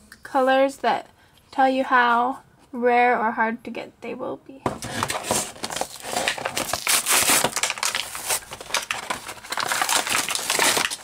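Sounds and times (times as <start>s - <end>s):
plastic packaging crackling: 4.7s - 11.0s.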